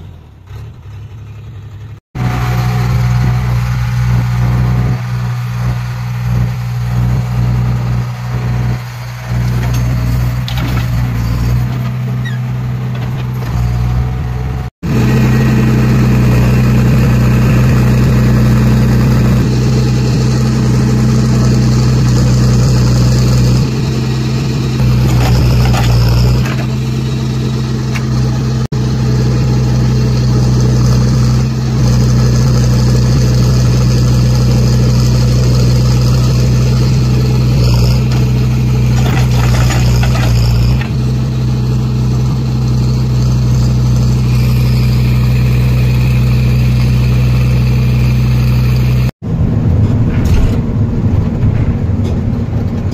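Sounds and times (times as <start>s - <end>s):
diesel engine running under load: 0.0s - 52.9s
backhoe arm digging soil: 24.8s - 28.2s, 37.6s - 41.0s.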